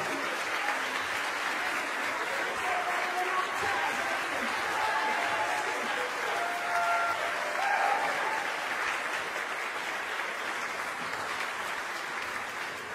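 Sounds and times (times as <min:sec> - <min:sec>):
audience applauding: 0:00.0 - 0:12.9
crowd calling out: 0:02.6 - 0:08.5.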